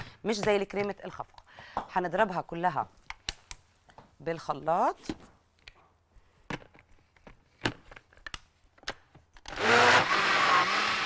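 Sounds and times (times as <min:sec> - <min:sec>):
blender running: 0:09.5 - 0:11.0.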